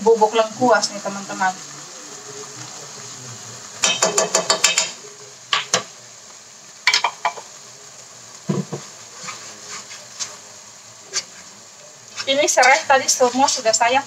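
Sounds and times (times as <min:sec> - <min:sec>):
spice paste sizzling in a wok: 0:00.0 - 0:14.0
spatula stirring and knocking: 0:03.8 - 0:05.9, 0:08.5 - 0:10.4, 0:11.1 - 0:11.5, 0:12.1 - 0:13.7.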